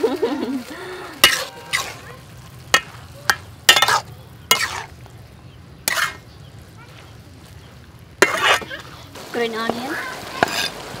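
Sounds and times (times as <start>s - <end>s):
faint frying: 0.0s - 11.0s
metal spatula scraping a wok: 1.2s - 5.0s, 5.8s - 6.3s, 8.2s - 9.0s, 10.4s - 10.8s.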